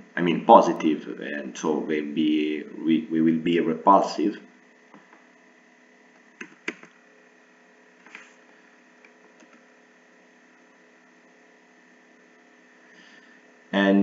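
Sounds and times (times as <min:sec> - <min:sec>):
faint electrical hum: 0:00.0 - 0:14.0
computer mouse clicks: 0:06.3 - 0:07.0, 0:09.0 - 0:09.7.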